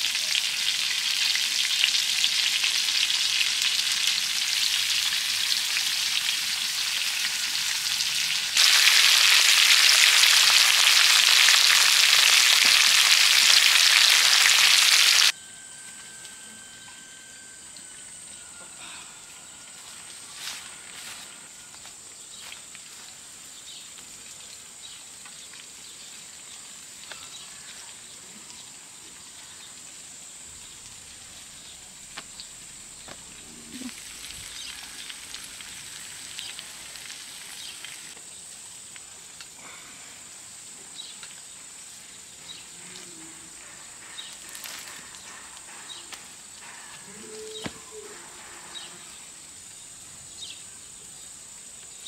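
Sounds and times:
crackle: 0.0s - 39.6s, 40.4s - 49.8s
high-pitched insect chirring: 3.9s - 21.9s.

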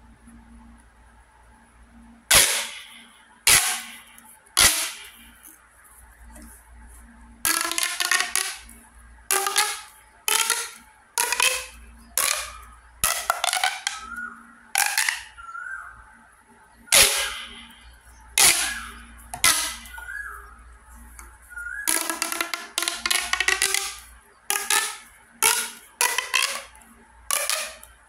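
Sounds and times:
plastic pop tube clicking: 2.3s - 5.6s, 7.4s - 15.4s, 16.9s - 17.7s, 18.4s - 20.4s, 21.1s - 28.0s.

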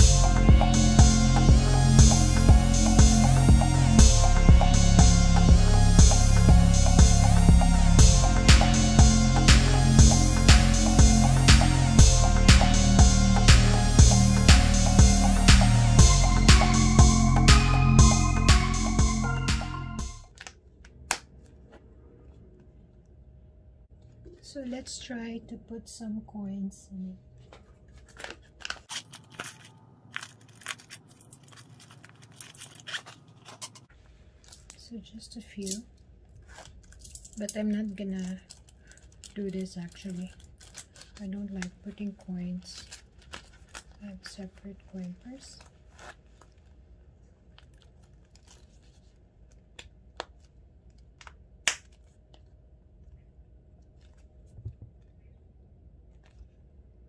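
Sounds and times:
leather rustling: 27.5s - 34.8s, 45.0s - 49.2s
plastic packet crinkling: 27.7s - 34.8s, 36.3s - 46.8s
wallet snap clicks: 51.2s - 52.0s.

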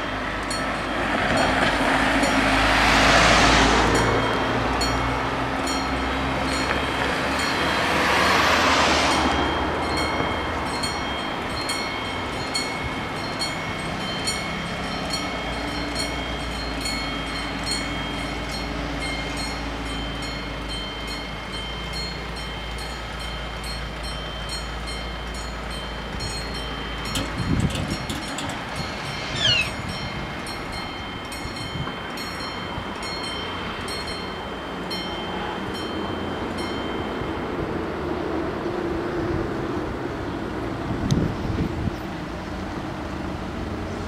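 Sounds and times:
level crossing bells ringing: 0.0s - 37.8s
steady low rumble: 25.4s - 32.5s.

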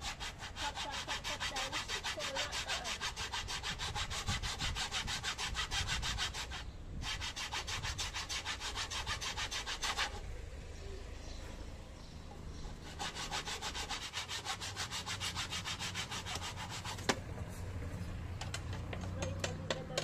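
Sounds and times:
hacksaw cutting laminate plank: 0.0s - 10.2s, 12.8s - 17.2s.

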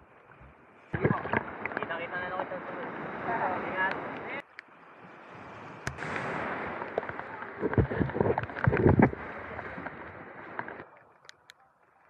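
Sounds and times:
surf washing up sand: 0.9s - 11.0s
thumps on microphone: 7.6s - 9.2s.

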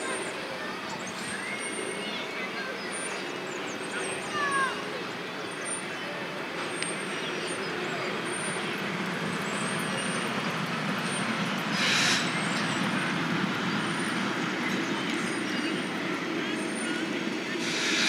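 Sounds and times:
train rumbling along track: 0.0s - 18.0s
brief hiss: 17.6s - 18.0s.

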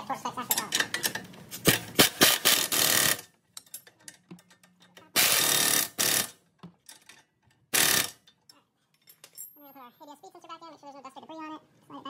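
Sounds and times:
impact wrench rattling: 0.8s - 7.1s, 7.7s - 8.3s.

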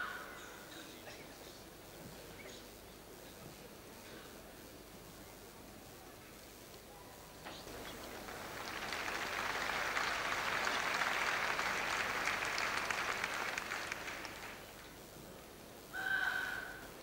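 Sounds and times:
audience applauding: 7.5s - 14.8s.

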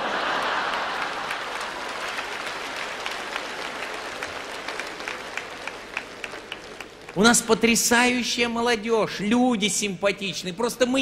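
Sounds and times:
audience laughing: 0.0s - 5.0s
audience applauding: 0.0s - 8.2s.

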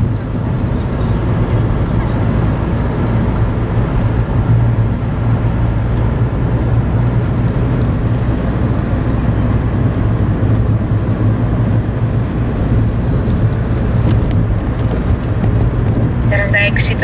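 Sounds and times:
car cabin road rumble: 0.0s - 17.0s.

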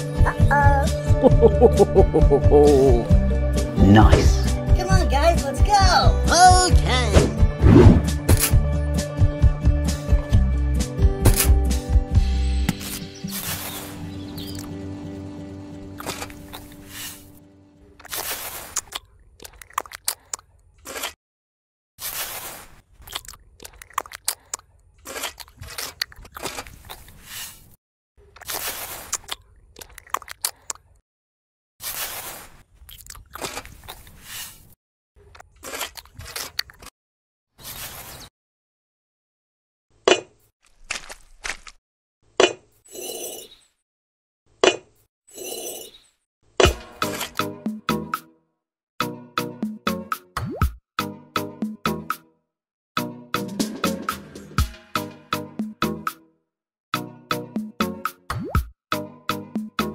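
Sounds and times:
trowel scraping wet mortar: 22.0s - 22.9s, 31.8s - 32.6s.

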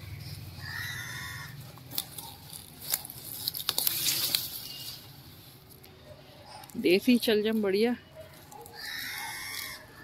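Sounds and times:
leaves crackling and rustling: 0.1s - 5.9s.

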